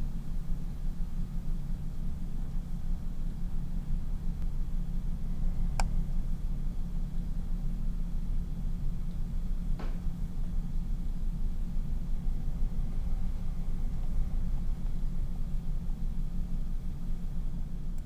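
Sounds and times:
low hum: 0:00.0 - 0:18.0
mouse click: 0:05.8 - 0:06.0.

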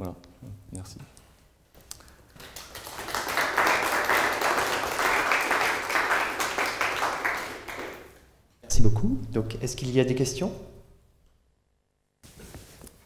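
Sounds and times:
audience applauding: 0:02.3 - 0:08.2.

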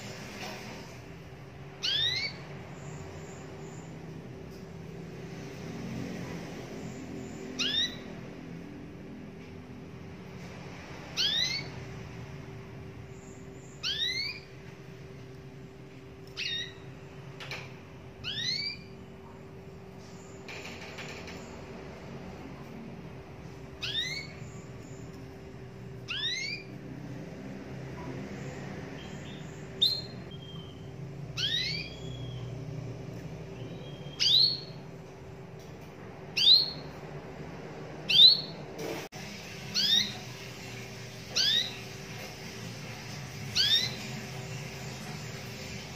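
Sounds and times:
canary call notes: 0:01.8 - 0:03.0, 0:07.4 - 0:08.2, 0:13.7 - 0:14.5, 0:26.1 - 0:26.8, 0:29.0 - 0:32.6, 0:39.7 - 0:42.0, 0:43.5 - 0:45.8.

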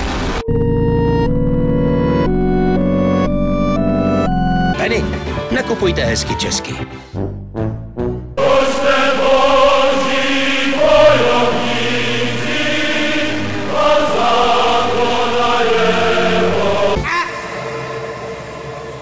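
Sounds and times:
choir chanting held chords: 0:08.4 - 0:19.0.

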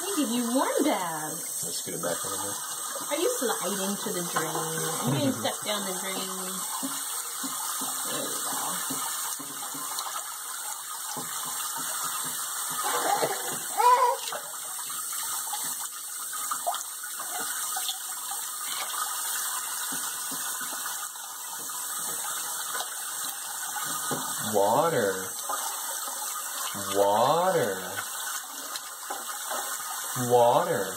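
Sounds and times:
faucet spray running into sink: 0:00.0 - 0:30.9
baby splashing water: 0:03.0 - 0:15.6
baby squealing: 0:12.9 - 0:14.4.

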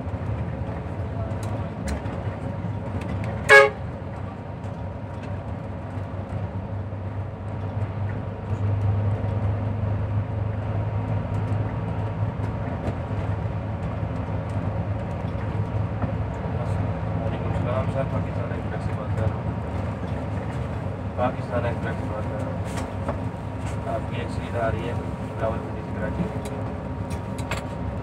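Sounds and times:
bus engine drone: 0:00.0 - 0:28.0
road noise: 0:00.0 - 0:28.0
horn toot: 0:03.5 - 0:03.8.

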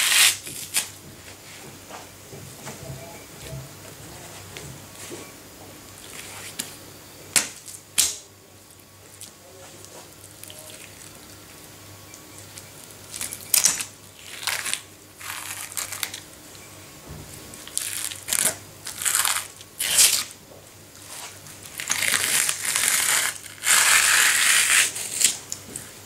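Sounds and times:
fish skin tearing: 0:21.8 - 0:25.4.

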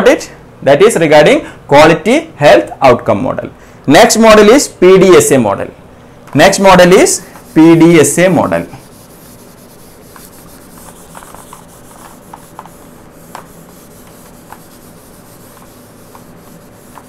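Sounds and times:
eraser rubbing on whiteboard: 0:06.8 - 0:17.0
small knocks and ticks: 0:11.0 - 0:13.5.

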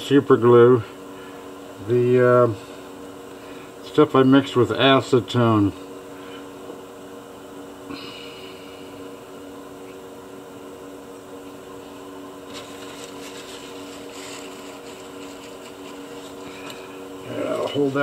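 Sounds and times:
machine hum: 0:00.0 - 0:18.0
faint scratchy rustles: 0:12.5 - 0:18.0.

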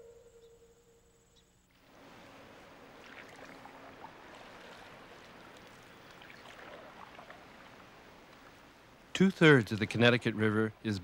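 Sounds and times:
low steady hiss: 0:00.0 - 0:11.0
water drips and trickles: 0:01.9 - 0:10.0.

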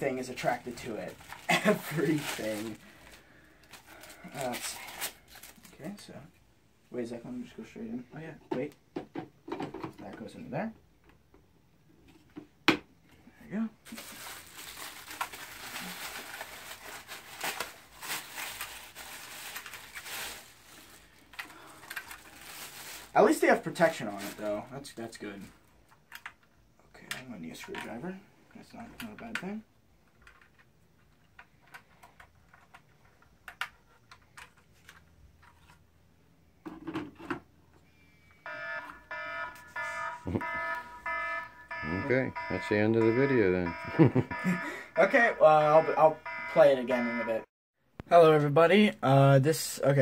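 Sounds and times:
plastic wrap crinkling: 0:00.0 - 0:05.9, 0:13.8 - 0:24.6
clicks and knocks of parts handled: 0:21.2 - 0:22.3, 0:25.8 - 0:28.0, 0:28.9 - 0:35.9
phone ringtone: 0:38.4 - 0:47.4.

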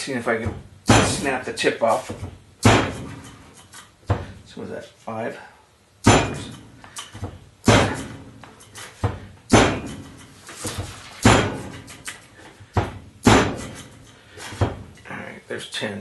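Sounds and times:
knife blade striking wooden board: 0:07.7 - 0:11.9.

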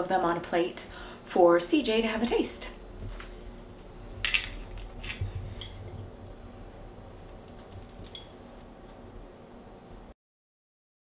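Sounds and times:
dishes clicking and tapping: 0:04.2 - 0:06.0, 0:07.5 - 0:08.4.

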